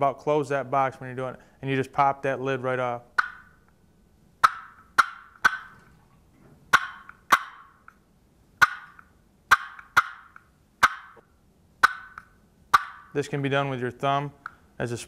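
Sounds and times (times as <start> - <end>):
turkey box call clucks: 3.1 - 3.8, 4.4 - 6.0, 6.7 - 8.0, 8.6 - 13.2.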